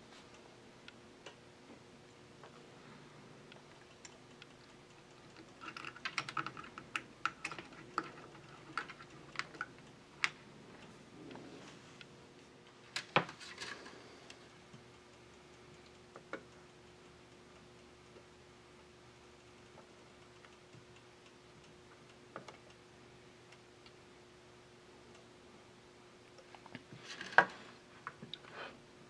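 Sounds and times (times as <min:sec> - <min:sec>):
faint steady hum: 0:00.0 - 0:29.0
light clicks and taps of components: 0:19.4 - 0:22.8.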